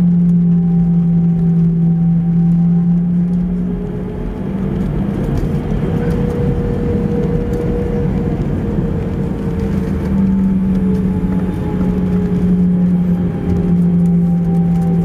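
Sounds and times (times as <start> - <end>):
jet engines humming in cabin: 0.0 - 15.0
low rumble: 0.0 - 15.0.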